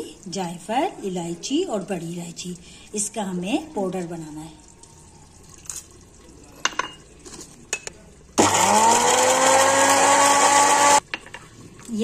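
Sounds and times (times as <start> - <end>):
mixer grinder motor whining: 8.4 - 11.0.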